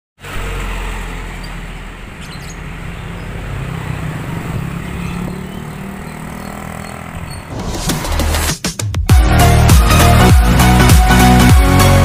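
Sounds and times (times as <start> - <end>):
motorcycles riding past: 0.2 - 8.1
diesel truck driving past: 0.2 - 8.4.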